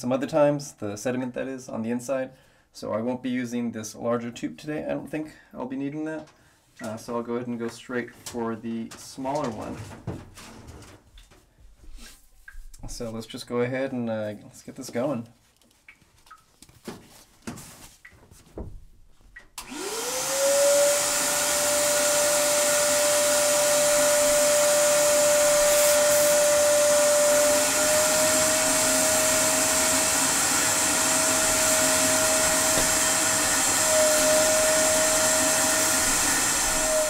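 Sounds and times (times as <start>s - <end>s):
shop vacuum motor whine: 19.6s - 37.0s.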